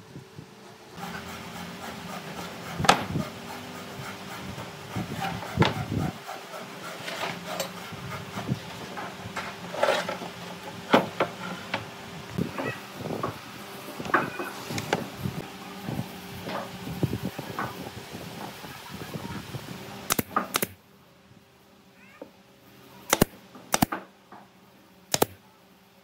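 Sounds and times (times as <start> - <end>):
steady low hum: 0.0 - 26.0
boards scraping on workbench: 1.0 - 11.8.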